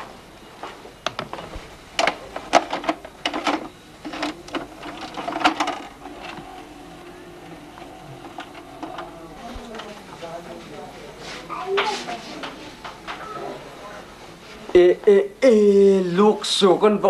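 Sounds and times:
vcr mechanical whirr: 0.0s - 17.0s
vcr clicks and clunks: 1.0s - 10.1s.

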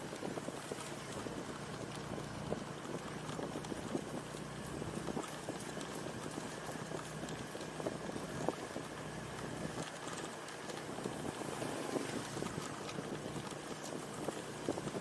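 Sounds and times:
motorcycle engine hum: 0.0s - 15.0s
road and wind noise: 0.0s - 15.0s
small knocks and rattles: 12.4s - 15.0s.

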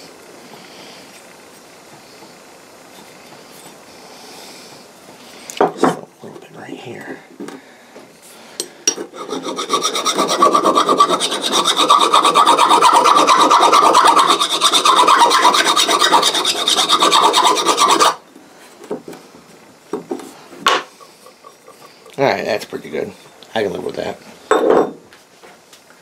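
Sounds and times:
file scraping on steel: 9.0s - 18.2s.

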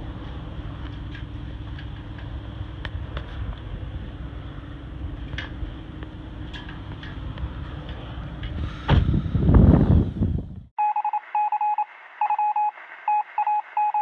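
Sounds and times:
loud low microphone rumble: 0.0s - 10.7s
morse code beeps: 10.8s - 14.0s.

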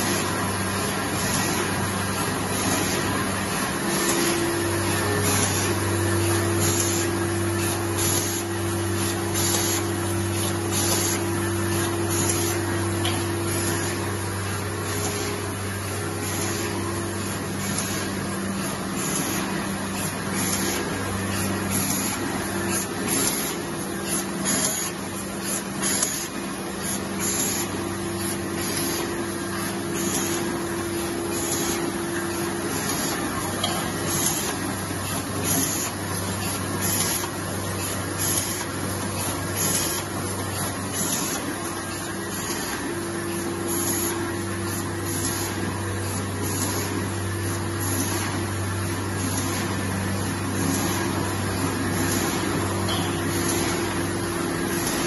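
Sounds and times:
machine mechanical hum: 0.0s - 55.0s.

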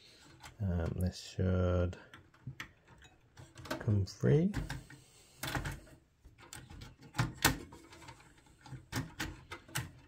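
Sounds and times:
plastic fastener clicks and knocks: 4.5s - 10.0s.

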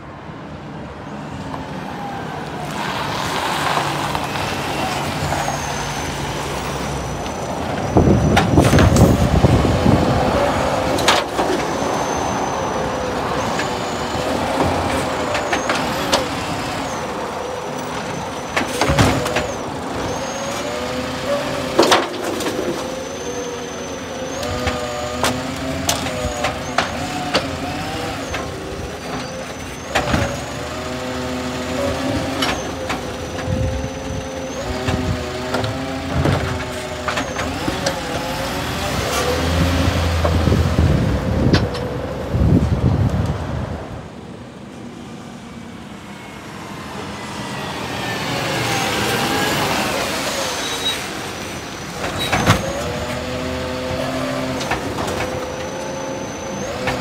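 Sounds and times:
hydraulic lifting arm whining: 1.5s - 42.8s, 45.5s - 57.0s
bins banging against hopper: 7.6s - 12.2s, 17.8s - 23.0s, 24.4s - 40.7s, 51.9s - 57.0s.

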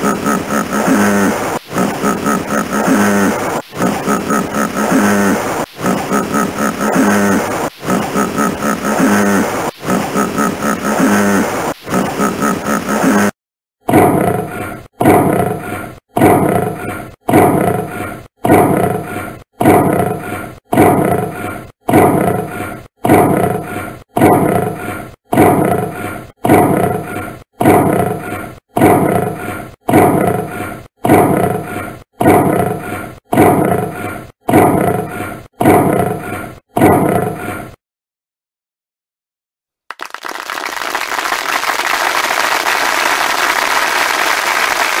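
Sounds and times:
lion roaring: 13.9s - 37.8s.

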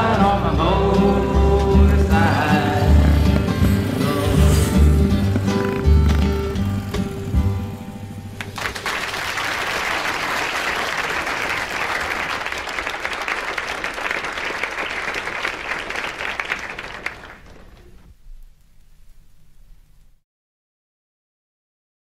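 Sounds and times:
audience applauding: 8.4s - 18.0s.

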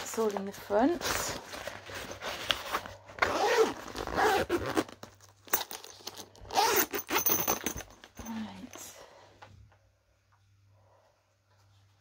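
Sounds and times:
zipper being pulled: 1.0s - 7.6s.

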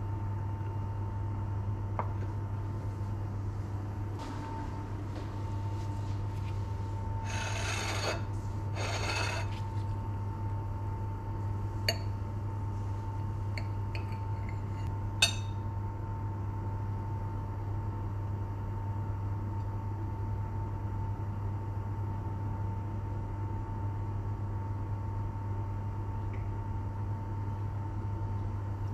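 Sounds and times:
steady low hum: 0.0s - 28.9s
knife scraping on plate: 7.2s - 9.8s.

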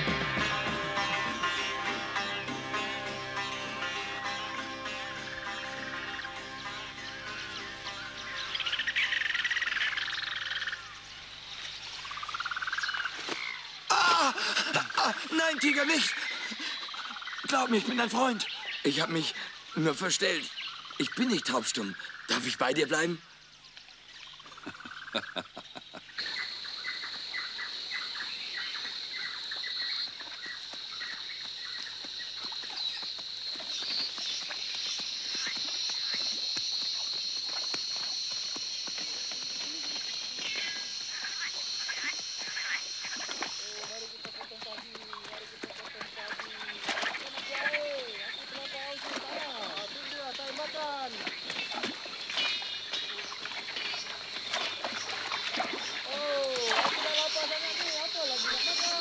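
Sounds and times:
bird chirps: 0.0s - 13.8s
hooves through undergrowth: 0.0s - 13.8s, 23.6s - 59.0s
insect drone: 0.0s - 59.0s.

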